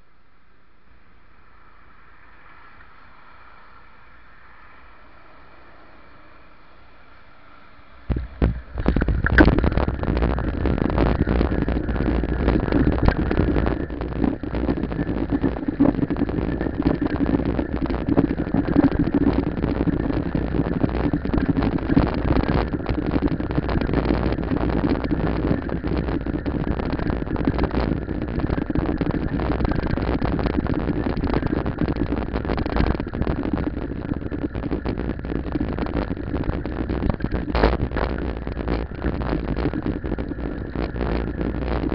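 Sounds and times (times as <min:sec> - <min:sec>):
bicycle rolling over asphalt: 0:01.4 - 0:41.9
wind buffeting microphone: 0:05.2 - 0:41.9.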